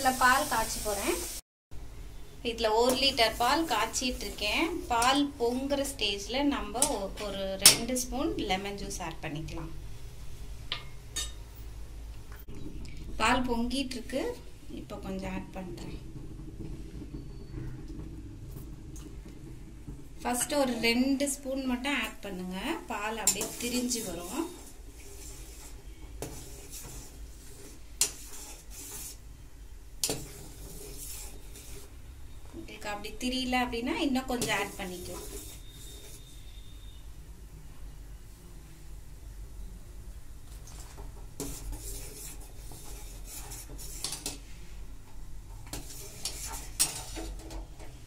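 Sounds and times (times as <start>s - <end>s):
ladle scraping and clinking in pot: 23.1s - 29.2s, 30.0s - 32.0s, 34.3s - 36.6s, 41.4s - 44.5s, 45.6s - 48.0s
liquid swishing: 23.3s - 29.3s, 30.1s - 32.0s, 34.5s - 36.7s, 40.7s - 44.3s, 45.7s - 47.5s.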